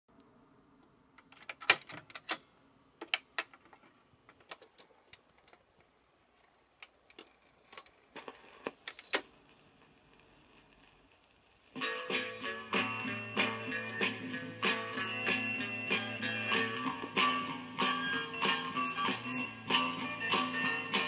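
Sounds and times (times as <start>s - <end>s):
record player clicks and clunks: 1.2s - 6.0s, 6.6s - 10.9s
faint steady hiss: 2.3s - 21.0s.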